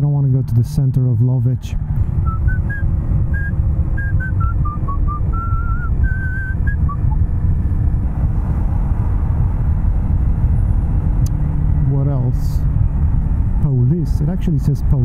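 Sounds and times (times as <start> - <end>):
wind rumble: 1.5 - 15.0
motorcycle engine: 1.8 - 15.0
person whistling a tune: 2.2 - 7.2.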